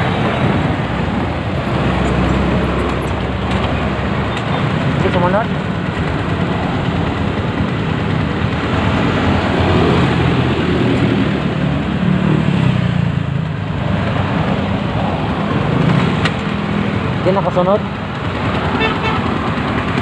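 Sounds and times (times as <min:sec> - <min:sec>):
motorcycle engine running: 0:02.2 - 0:12.2.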